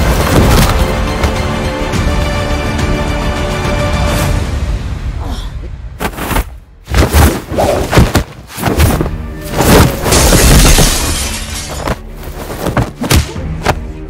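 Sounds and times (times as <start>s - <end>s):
punch and body-hit impacts: 6.0s - 11.2s, 11.8s - 13.8s.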